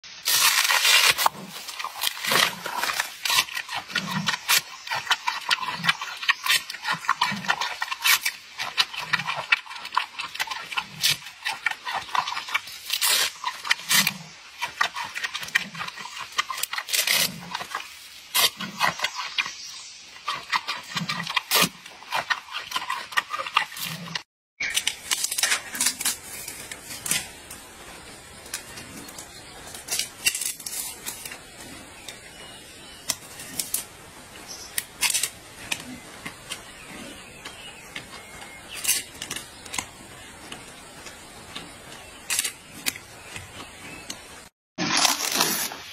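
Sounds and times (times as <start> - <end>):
panda crunching bamboo: 0.2 - 19.6, 20.3 - 27.5, 34.8 - 36.7.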